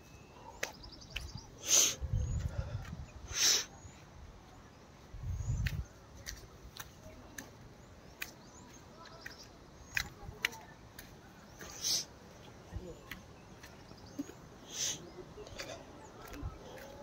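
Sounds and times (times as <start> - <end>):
wind rumble on microphone: 2.0 - 3.3, 5.1 - 6.0.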